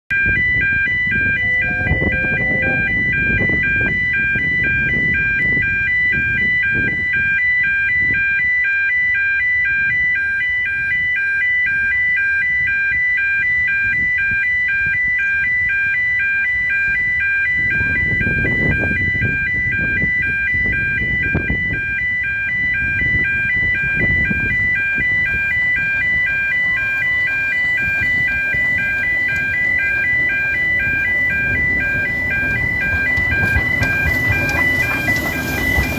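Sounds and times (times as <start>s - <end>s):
low train rumble: 0.1s - 8.2s, 16.5s - 35.9s
level crossing alarm pulsing: 0.1s - 35.9s.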